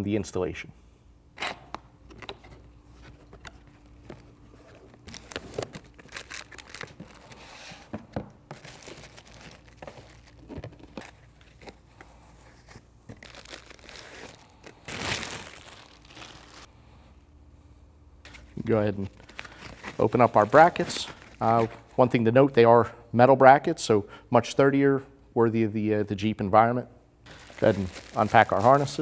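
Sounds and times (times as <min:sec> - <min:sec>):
cardboard and paper rustling: 0:02.2 - 0:16.7, 0:19.2 - 0:21.8, 0:27.3 - 0:29.0
plastic bags crinkling: 0:03.5 - 0:11.8, 0:13.1 - 0:16.7, 0:19.1 - 0:21.7, 0:27.3 - 0:29.0.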